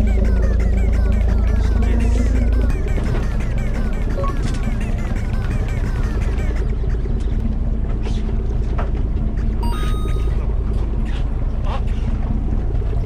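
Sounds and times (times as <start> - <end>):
boat engine low rumble: 0.0 - 13.0
brief tone: 9.6 - 10.7.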